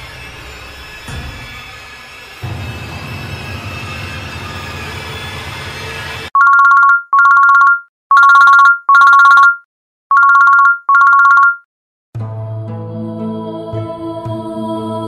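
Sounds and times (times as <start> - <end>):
telephone electronic ringer: 6.4 - 11.6
background music: 12.2 - 15.0.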